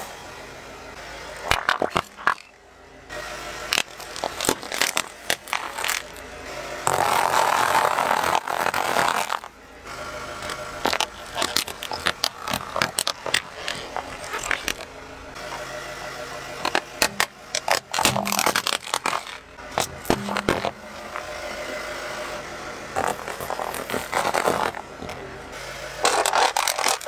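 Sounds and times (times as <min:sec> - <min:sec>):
tyre crushing small objects: 0:01.4 - 0:02.6, 0:03.7 - 0:06.2, 0:06.9 - 0:09.5, 0:10.4 - 0:14.9, 0:16.6 - 0:21.3, 0:23.0 - 0:25.2, 0:26.0 - 0:27.0.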